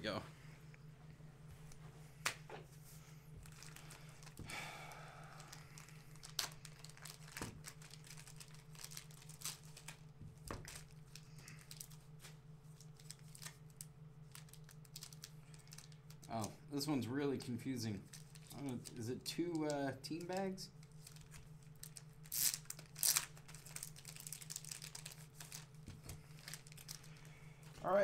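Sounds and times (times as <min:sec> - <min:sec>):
low steady hum: 0:00.0 - 0:28.0
wrapper crinkling and tearing: 0:03.4 - 0:04.4, 0:05.4 - 0:16.5, 0:18.0 - 0:27.4.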